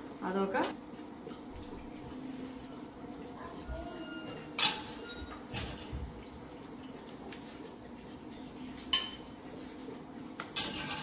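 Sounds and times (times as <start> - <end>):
utensil clinking against dish: 4.1 - 6.0, 8.9 - 9.3, 10.4 - 11.0.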